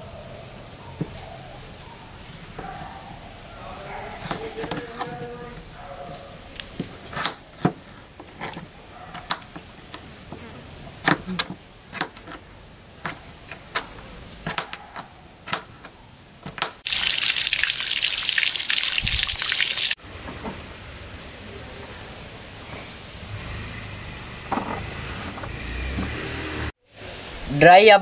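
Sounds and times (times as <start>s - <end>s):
water pouring and splashing: 16.8s - 20.0s.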